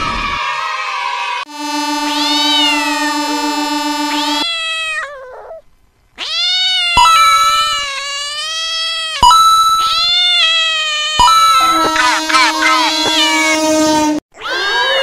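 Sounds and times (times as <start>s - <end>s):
steady held tone: 1.5s - 4.6s, 11.2s - 13.8s
cat meowing: 2.2s - 3.0s, 4.4s - 5.6s, 6.2s - 13.7s, 14.4s - 15.0s.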